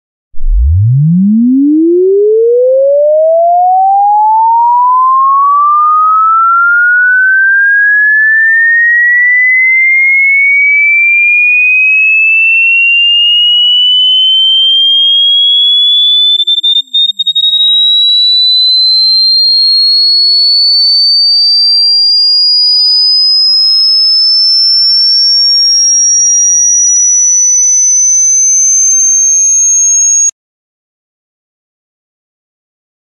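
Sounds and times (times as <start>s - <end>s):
sine tone sweeping upward: 0.4s - 30.3s.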